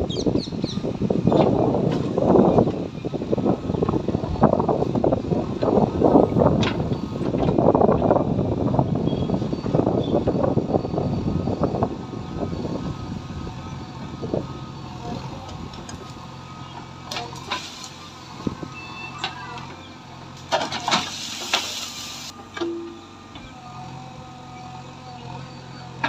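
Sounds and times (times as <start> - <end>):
diesel engine running: 0.0 - 26.0
bucket scraping soil: 20.7 - 22.3.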